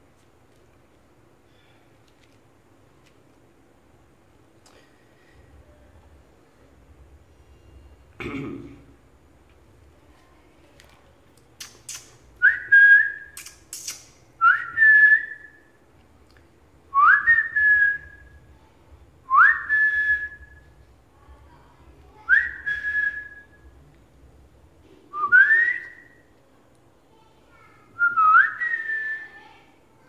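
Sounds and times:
person whistling calls: 11.6s - 15.6s, 22.3s - 23.5s, 25.1s - 26.2s, 28.0s - 29.4s
sharp clicks: 13.4s - 14.2s.

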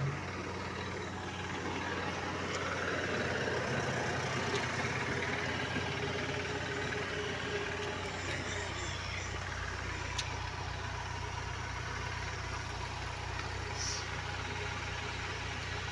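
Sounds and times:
diesel truck engine humming: 0.0s - 15.9s.

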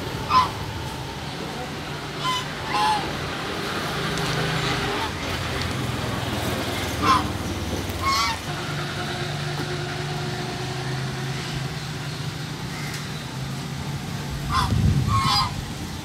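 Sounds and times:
geese honking: 0.0s - 0.7s, 1.5s - 5.5s, 6.7s - 13.0s, 14.4s - 15.7s.

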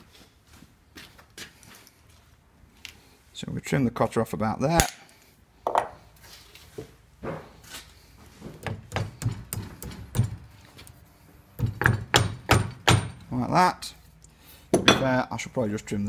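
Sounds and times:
hammer knocking on metal: 8.6s - 10.4s, 11.6s - 13.2s.

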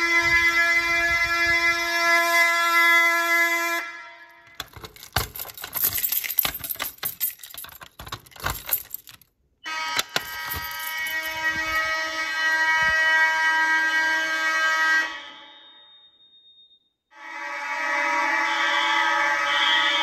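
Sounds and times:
fire alarm horn: 0.0s - 20.0s
keys jangling: 4.5s - 9.4s, 10.0s - 12.0s.

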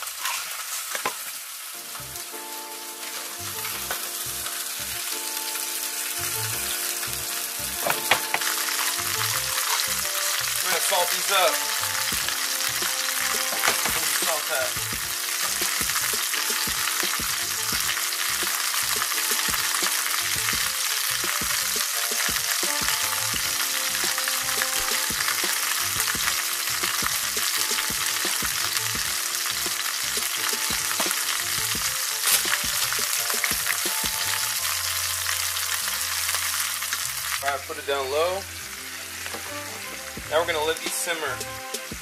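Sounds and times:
chicken sizzling in a skillet: 0.0s - 42.0s.

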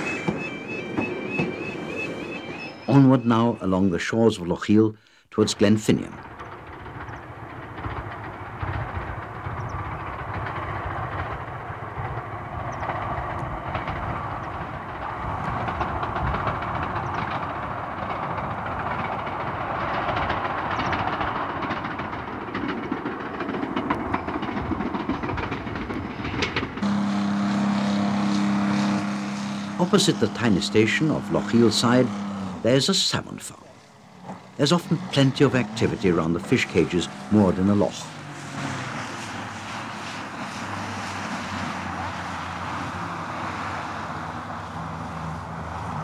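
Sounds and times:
train rumbling on rails: 0.0s - 46.0s
train wheel clicks: 6.1s - 26.8s
low hum: 26.8s - 40.8s.

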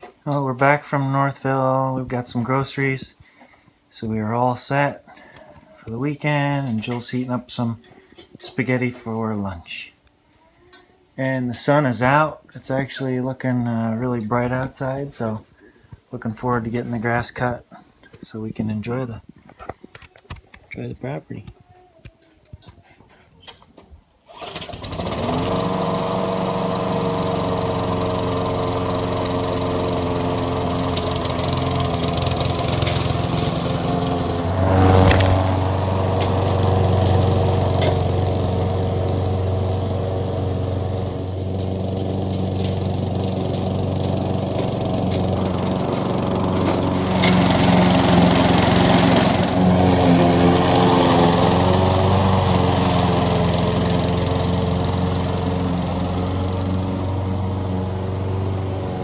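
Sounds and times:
lawn mower engine running: 24.3s - 59.0s.

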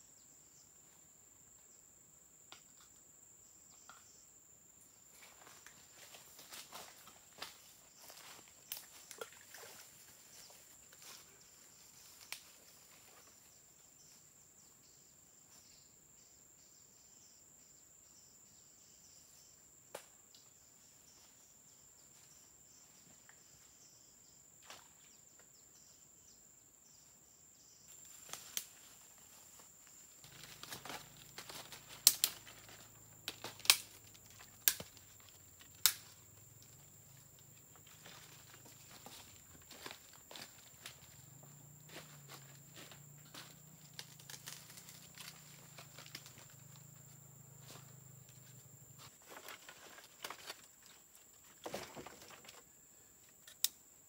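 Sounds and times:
footsteps crunching dry leaves: 30.2s - 36.3s, 37.7s - 46.7s.

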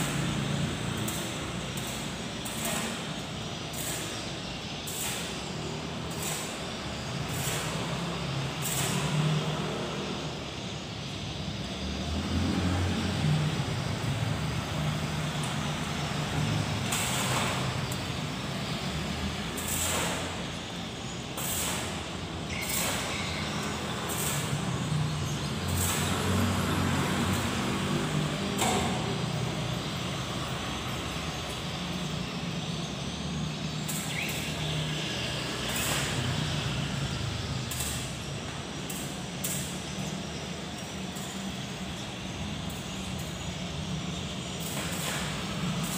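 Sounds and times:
arc welding crackling hiss: 0.0s - 45.9s.

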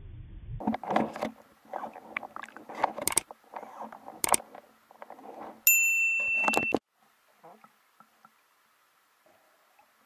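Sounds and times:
underwater crackling and rustling: 0.6s - 5.6s
sharp clicks: 3.0s - 3.3s, 4.2s - 4.4s
bell-like chime: 5.7s - 6.8s.

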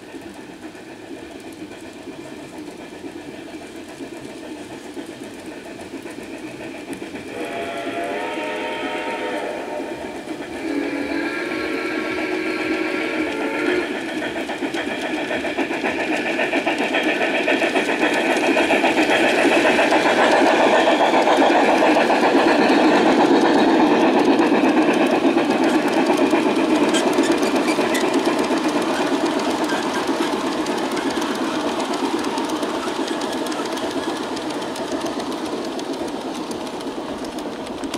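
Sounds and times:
model train motors whirring: 0.0s - 37.9s
wheels rattling on rails: 0.0s - 37.9s.

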